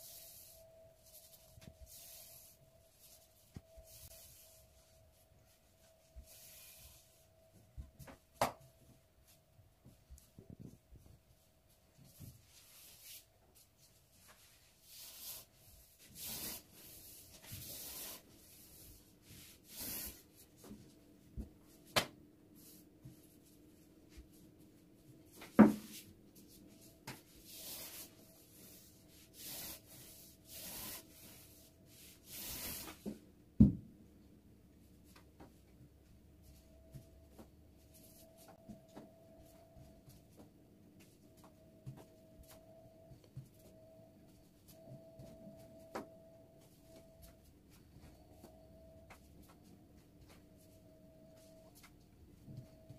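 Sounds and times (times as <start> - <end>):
rolling pin swishing over dough: 25.8 - 33.1.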